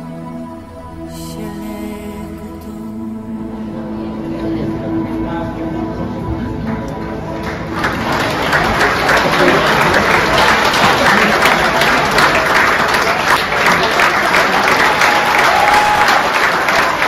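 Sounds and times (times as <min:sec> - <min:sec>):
audience applause: 0:07.0 - 0:17.0.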